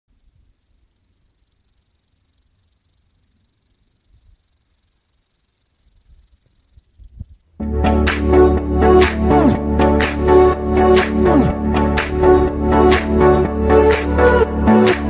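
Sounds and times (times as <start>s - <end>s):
crickets chirping: 0.1s - 7.5s.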